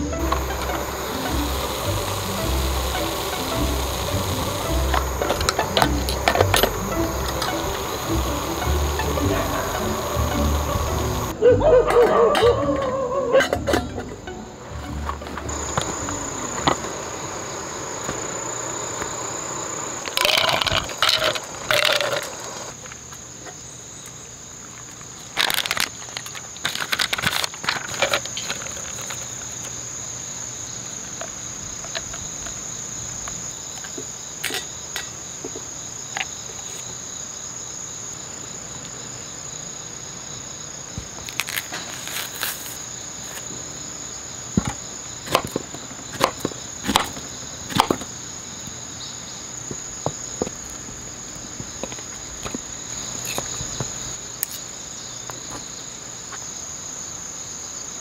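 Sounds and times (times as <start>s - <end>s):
high-pitched insect drone: 0.0s - 23.0s
paper and packaging rustling: 25.4s - 29.4s, 41.2s - 43.5s.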